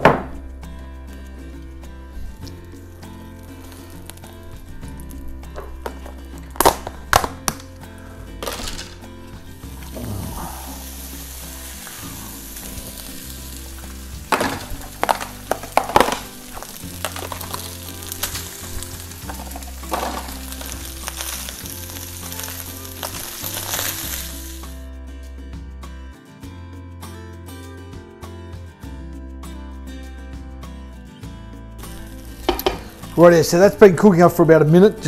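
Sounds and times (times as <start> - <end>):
rice sizzling in hot oil: 2.8 - 5.3, 8.4 - 24.8, 31.8 - 33.8
spatula knocking and scraping wok: 32.4 - 33.0.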